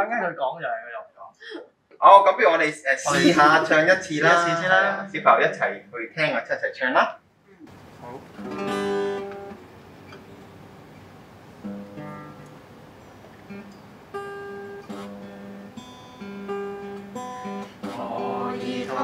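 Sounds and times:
person singing: 0:03.1 - 0:05.1, 0:17.9 - 0:19.0
acoustic guitar strumming chords: 0:03.1 - 0:05.2, 0:07.7 - 0:19.0.

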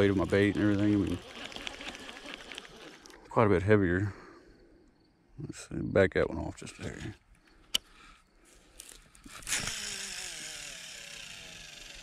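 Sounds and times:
fishing reel spool whirring: 0:00.0 - 0:03.4, 0:09.2 - 0:12.0.

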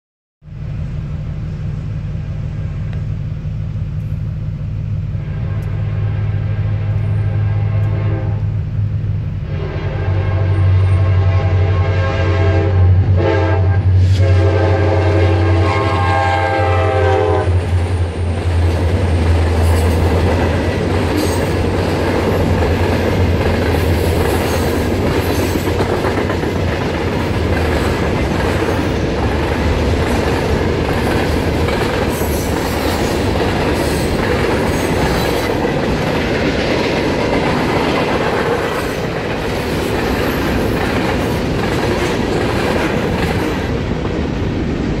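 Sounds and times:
diesel locomotive engines droning: 0:00.4 - 0:45.0
locomotive air horn: 0:05.1 - 0:08.6, 0:09.4 - 0:17.8
steel wheels clacking over rail joints: 0:17.6 - 0:44.4.

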